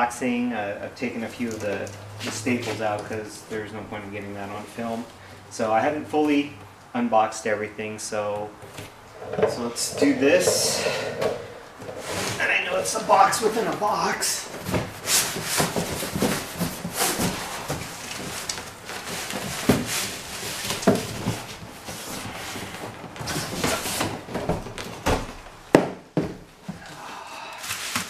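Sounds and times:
cardboard scraping and rustling: 0:14.5 - 0:24.8
knocks on cardboard boxes: 0:24.3 - 0:26.5.

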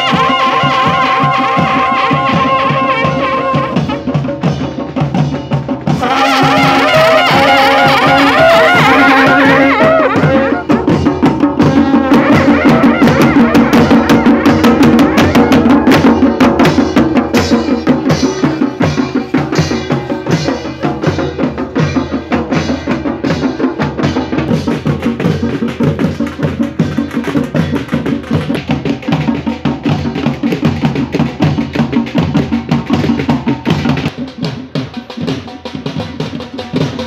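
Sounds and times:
brass horns sounding: 0:00.0 - 0:04.3, 0:05.9 - 0:19.3
barrel drums beating fast rhythm: 0:00.0 - 0:37.0.

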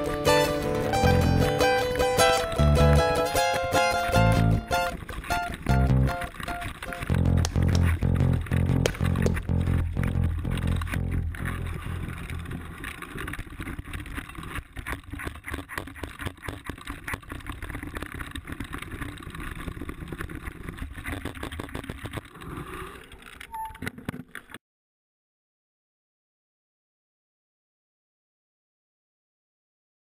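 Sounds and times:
background music: 0:00.0 - 0:12.2
bike rattling over bumps: 0:00.0 - 0:22.6
brief squeak: 0:23.5 - 0:24.0.

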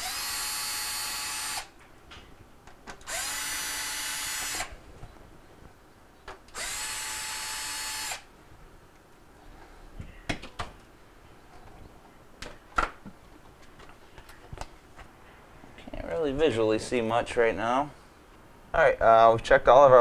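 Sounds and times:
cordless drill running: 0:00.0 - 0:01.7, 0:03.0 - 0:04.7, 0:06.5 - 0:08.3.

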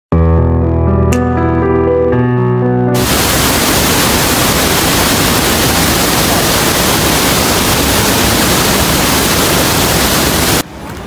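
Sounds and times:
waterfall rushing: 0:03.0 - 0:10.6.

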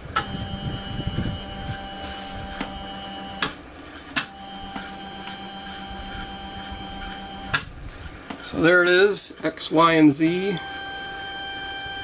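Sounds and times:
stepper motor whining: 0:00.0 - 0:12.0
motor stopping click: 0:04.2 - 0:07.7.

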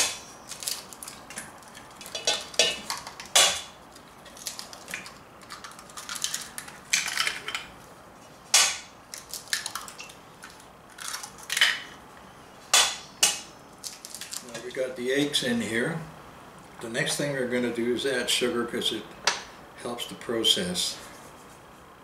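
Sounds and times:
eggs cracking on metal bowl: 0:00.0 - 0:07.8, 0:08.5 - 0:12.0.

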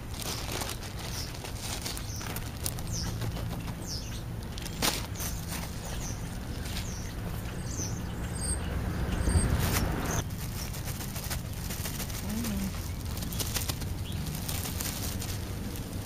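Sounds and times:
plastic bag rustling: 0:00.0 - 0:03.8, 0:04.5 - 0:06.9, 0:09.6 - 0:16.0.

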